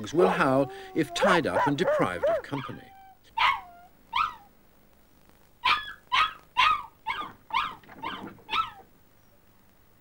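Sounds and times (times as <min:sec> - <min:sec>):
small dog yelping: 0:00.2 - 0:04.5, 0:05.6 - 0:08.9.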